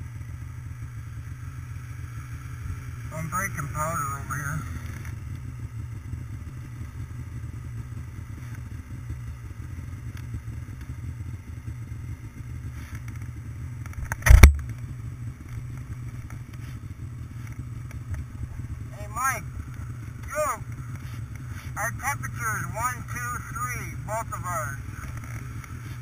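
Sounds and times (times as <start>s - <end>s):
snowmobile engines idling: 0.0s - 26.0s
sharp thump: 14.0s - 14.6s.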